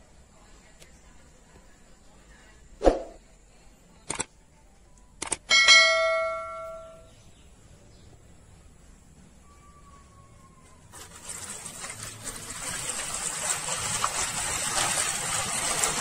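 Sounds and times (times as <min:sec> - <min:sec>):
bell chime: 0:05.5 - 0:07.1.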